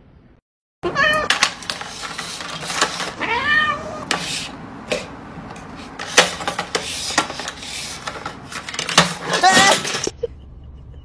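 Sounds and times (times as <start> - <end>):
cat meowing: 0.8 - 1.5, 3.1 - 4.1
dishes clicking and knocking: 1.3 - 3.2, 4.0 - 10.1.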